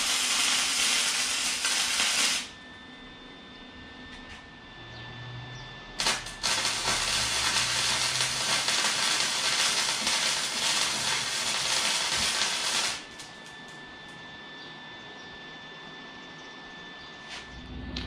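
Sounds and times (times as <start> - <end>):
arc welding crackling sizzle: 0.0 - 2.6, 6.0 - 13.8.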